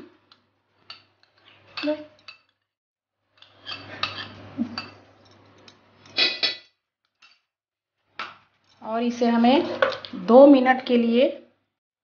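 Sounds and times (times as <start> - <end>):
spoon scraping a metal bowl: 3.3 - 7.4.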